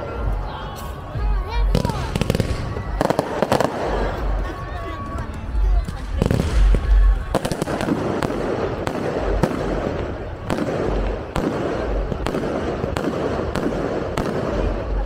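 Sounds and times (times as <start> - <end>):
fireworks bangs and crackling: 0.0 - 15.0
heavy firework booms: 1.7 - 4.4, 5.9 - 15.0.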